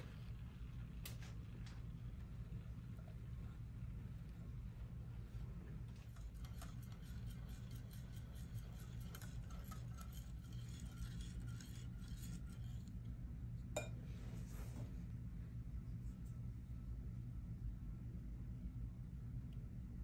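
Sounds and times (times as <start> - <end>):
whisk clinking on glass: 6.0 - 12.9
wire whisk ticking against glass bowl: 6.0 - 12.9.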